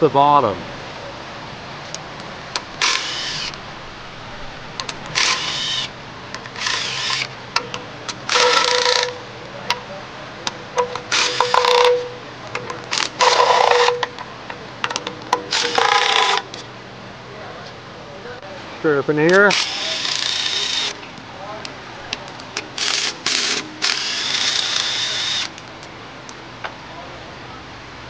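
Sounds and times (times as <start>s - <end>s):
cordless power tool spinning bolts: 2.8s - 3.6s, 5.1s - 5.9s, 6.5s - 7.3s, 8.3s - 9.2s, 11.0s - 12.1s, 12.9s - 14.0s, 15.5s - 16.5s, 19.4s - 21.0s, 22.6s - 25.6s.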